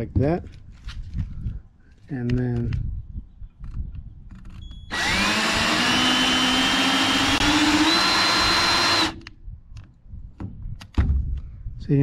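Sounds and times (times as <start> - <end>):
electric drill whining: 4.9 - 9.2.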